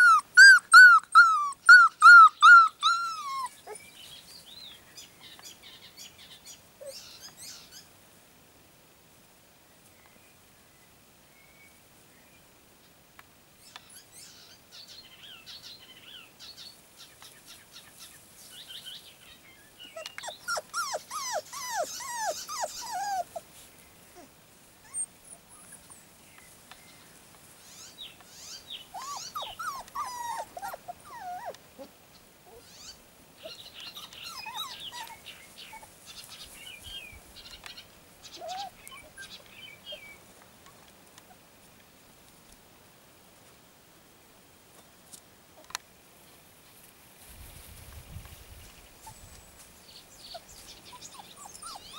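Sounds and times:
puppies yelping: 0.0s - 3.9s, 19.8s - 23.6s, 24.2s - 25.8s, 28.4s - 31.9s, 32.5s - 36.0s, 38.4s - 40.1s, 50.3s - 51.9s.

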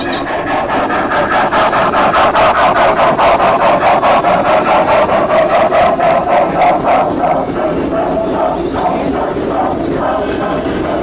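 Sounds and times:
model train running rhythmically: 0.0s - 11.0s.

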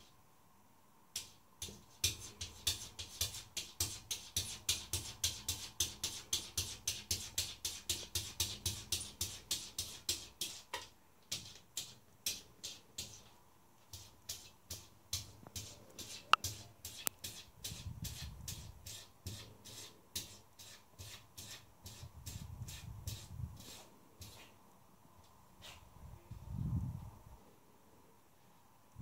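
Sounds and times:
cat scratching at glass: 1.2s - 13.3s, 13.9s - 24.5s.

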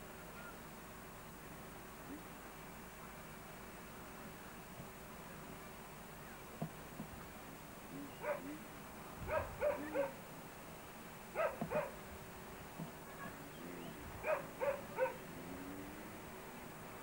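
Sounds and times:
dog barking: 8.2s - 8.6s, 9.3s - 10.2s, 11.4s - 12.0s, 14.2s - 15.2s.

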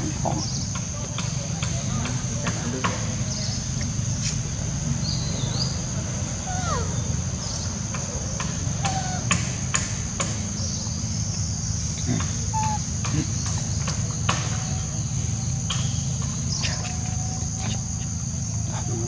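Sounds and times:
high-pitched insect drone: 0.0s - 19.0s.

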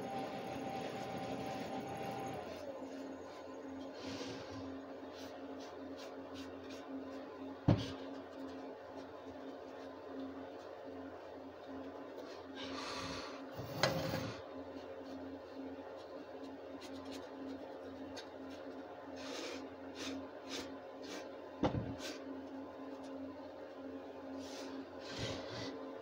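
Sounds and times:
foam brush rubbing on wood: 5.0s - 7.3s.

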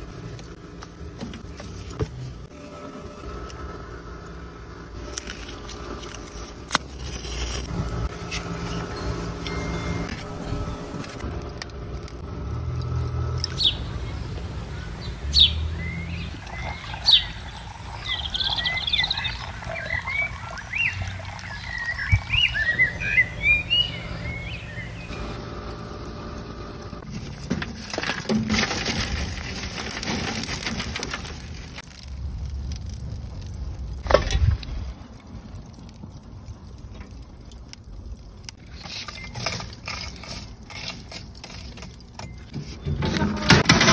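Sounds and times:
rustling and scraping: 0.0s - 2.5s, 5.0s - 12.2s, 27.0s - 32.0s, 38.6s - 43.9s
small birds chirping: 13.4s - 25.2s.

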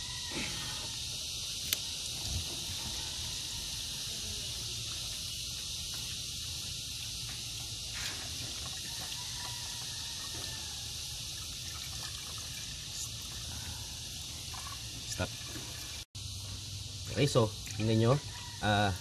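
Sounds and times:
water trickling into radiator: 4.4s - 16.1s.

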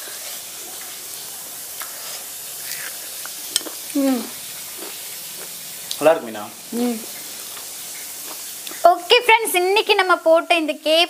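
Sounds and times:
steady hiss: 0.0s - 11.0s
fried chicken crunching: 1.8s - 4.0s
person humming mm: 3.9s - 4.4s, 6.7s - 7.1s.

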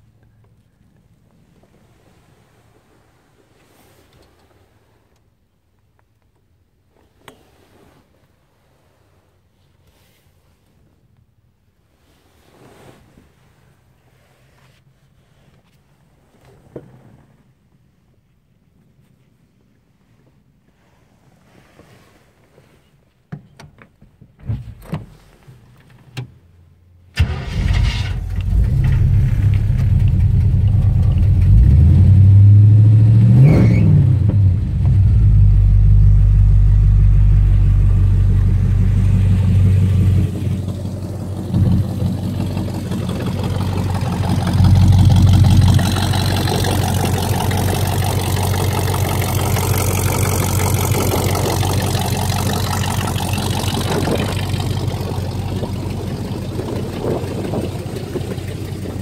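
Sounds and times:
car engine revving and idling: 27.8s - 59.0s.

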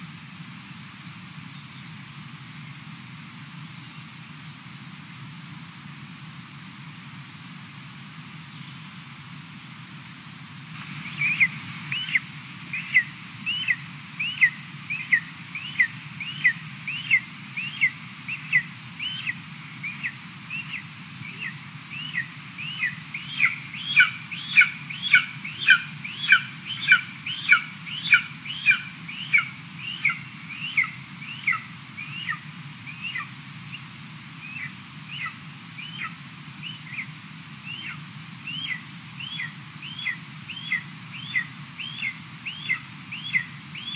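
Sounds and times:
eaglet chirping calls: 11.1s - 33.8s, 34.4s - 37.1s, 37.7s - 43.9s.

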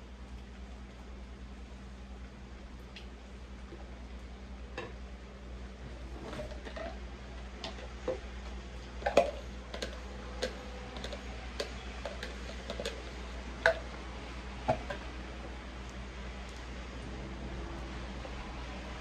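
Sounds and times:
steady low hum: 0.0s - 19.0s
jug and bowl clicking and knocking: 9.0s - 14.0s, 14.6s - 15.1s.

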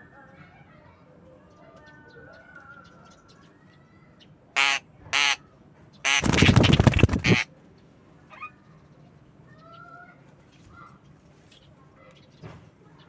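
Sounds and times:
faint bird chatter: 0.0s - 13.0s
harsh bird calls: 4.6s - 5.4s, 6.0s - 7.5s
wing flapping: 6.1s - 7.5s.

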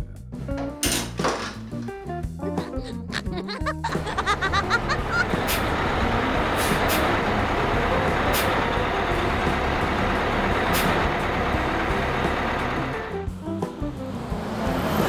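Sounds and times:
bus engine running: 3.8s - 15.0s
air brake hisses: 6.5s - 7.2s, 8.3s - 8.7s, 10.7s - 11.1s.

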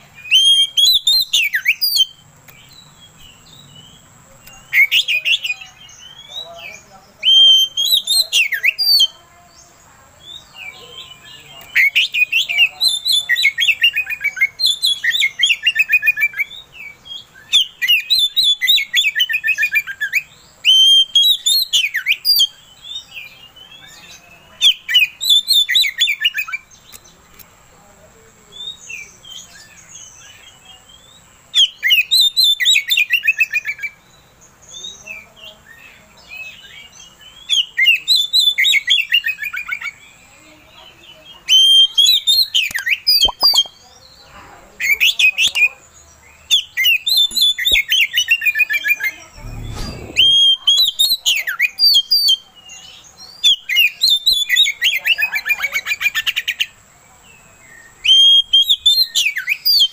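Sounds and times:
bird singing whistled trills: 0.1s - 4.0s, 7.2s - 9.1s, 10.2s - 26.7s, 28.6s - 35.1s, 41.4s - 43.9s, 46.4s - 56.7s, 57.8s - 59.9s.

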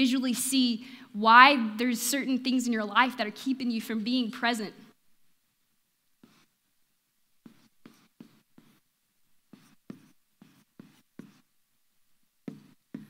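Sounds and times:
marker squeaking on whiteboard: 6.2s - 6.6s, 7.4s - 11.6s, 12.4s - 13.0s.

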